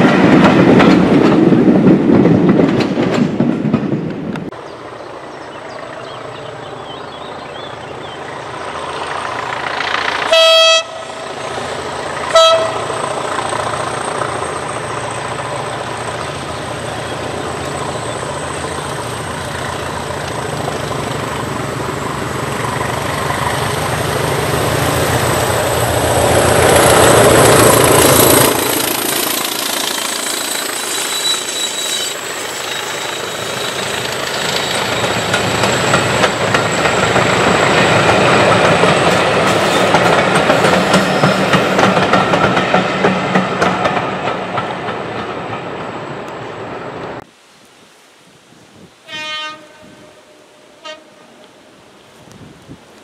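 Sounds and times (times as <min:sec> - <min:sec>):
diesel locomotive engine: 0:00.0 - 0:47.3
train horn blast: 0:10.2 - 0:11.4, 0:12.3 - 0:13.1, 0:49.0 - 0:51.6.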